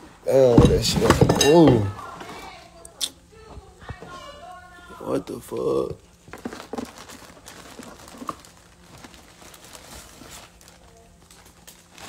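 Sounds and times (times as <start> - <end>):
wet paper crinkling: 6.1 - 12.0.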